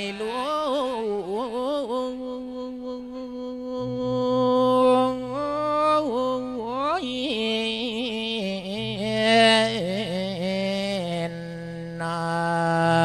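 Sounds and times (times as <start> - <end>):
monk chanting through microphone: 3.8 - 6.5.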